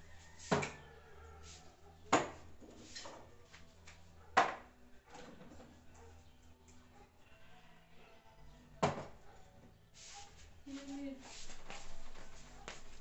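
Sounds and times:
objects knocking on wooden dresser: 0.5s - 0.8s, 2.1s - 2.8s, 4.4s - 5.6s, 8.8s - 9.2s.

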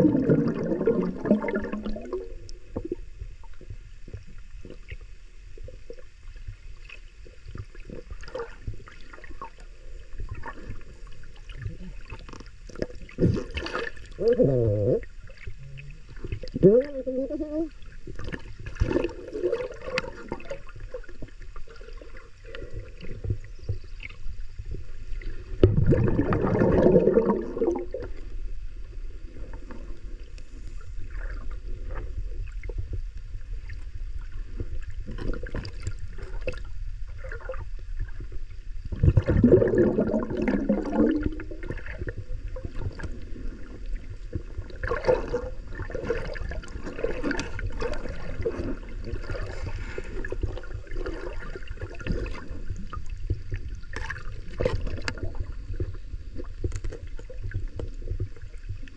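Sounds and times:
underwater rushing gurgling surges: 0.0s - 4.0s, 24.8s - 30.2s, 34.3s - 58.9s.

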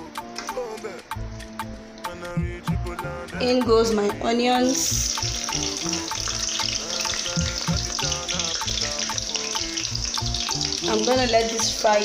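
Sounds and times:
background music with steady beat: 0.0s - 12.0s
onions sizzling in oil: 4.8s - 12.0s.

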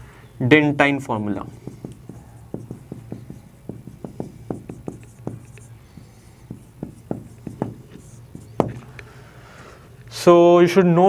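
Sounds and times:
marker writing on whiteboard: 1.4s - 9.2s.

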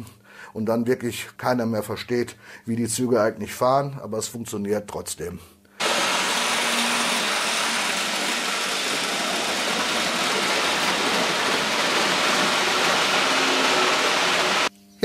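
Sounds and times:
model train wheels rushing on rails: 5.8s - 14.7s.

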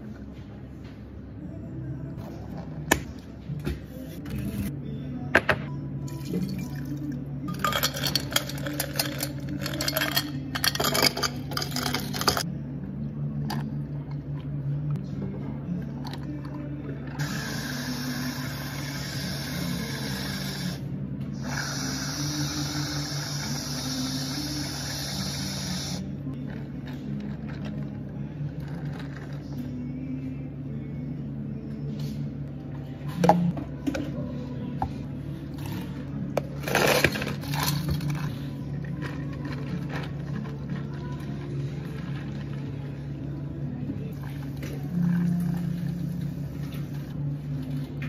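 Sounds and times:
low steady hum: 0.0s - 48.0s
ice clattering into plastic cup: 7.5s - 12.4s
whipped cream dispenser hissing: 17.2s - 20.8s, 21.4s - 26.1s.

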